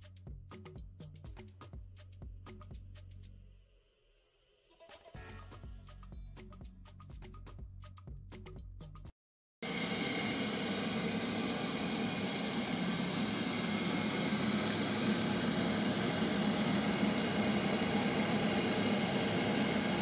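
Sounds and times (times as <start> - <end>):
boiler fan running: 9.7 - 20.0.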